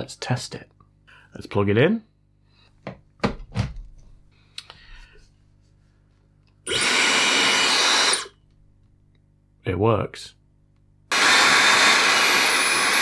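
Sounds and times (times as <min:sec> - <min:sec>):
hair dryer blowing air: 0:06.7 - 0:08.3, 0:11.1 - 0:13.0.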